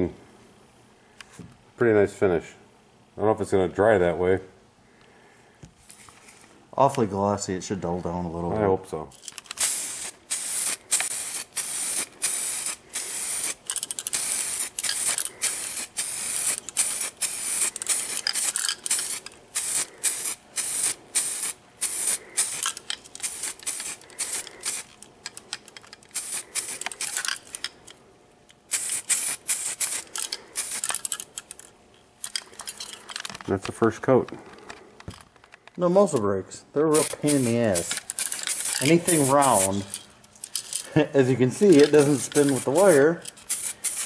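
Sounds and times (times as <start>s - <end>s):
aerosol spray can hissing: 9.6s - 25.0s, 26.1s - 27.2s, 28.7s - 30.9s, 37.0s - 39.9s, 41.6s - 44.0s.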